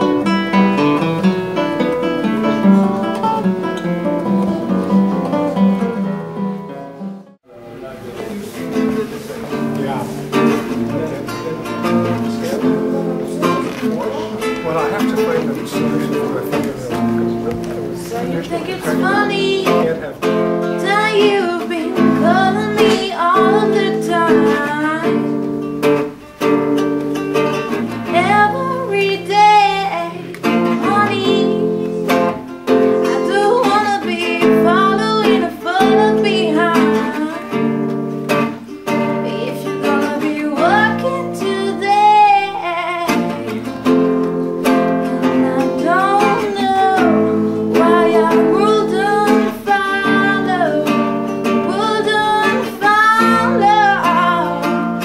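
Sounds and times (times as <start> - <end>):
nylon-string guitar: 0.0 - 55.0
person singing: 18.1 - 55.0.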